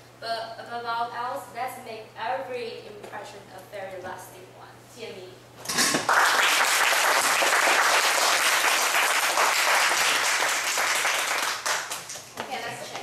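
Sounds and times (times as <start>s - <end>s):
audience applauding: 6.0s - 12.2s.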